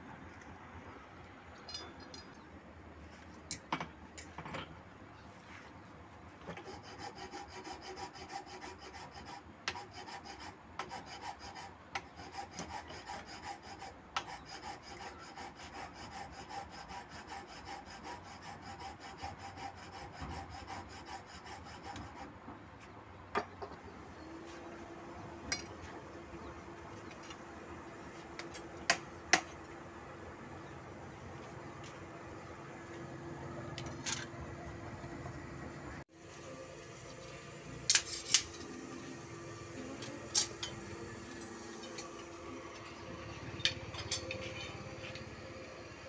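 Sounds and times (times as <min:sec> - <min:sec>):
file rasping on steel blade: 0:06.5 - 0:22.3, 0:43.3 - 0:45.3.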